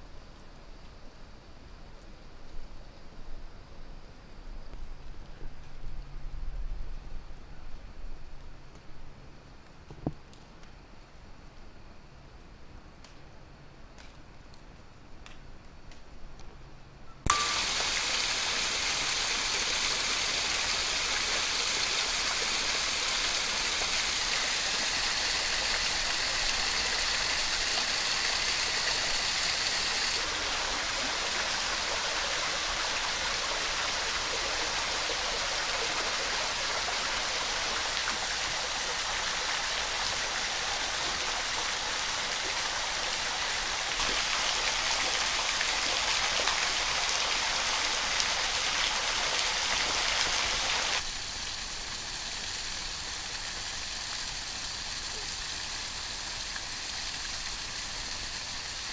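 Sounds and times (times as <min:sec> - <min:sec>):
water dripping: 0:17.3 - 0:51.0
waterfalls splashing into pools: 0:17.3 - 0:58.9.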